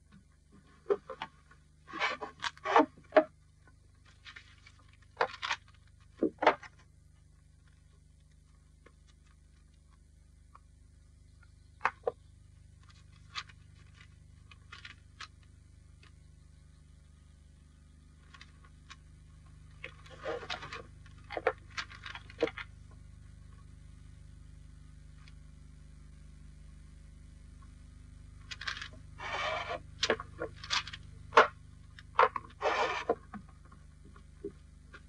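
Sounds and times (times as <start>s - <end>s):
low soundtrack hum: 3.0s - 35.0s
paper rustling: 4.0s - 6.2s, 12.8s - 15.5s, 18.2s - 22.7s, 28.4s - 33.2s.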